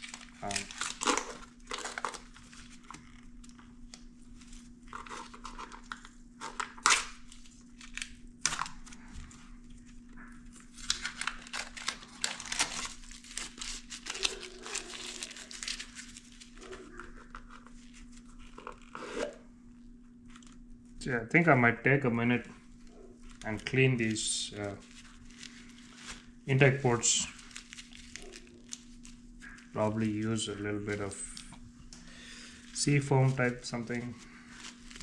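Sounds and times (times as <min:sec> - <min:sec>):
faint steady hum: 0:00.0 - 0:35.0
crinkling and rustling: 0:22.4 - 0:35.0.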